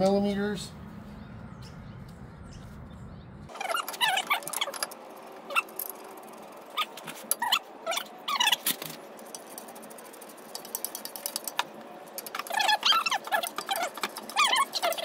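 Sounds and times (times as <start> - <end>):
high squeaky chirps: 1.4 - 8.6, 12.3 - 15.0
ratchet wrench clicking: 8.4 - 15.0.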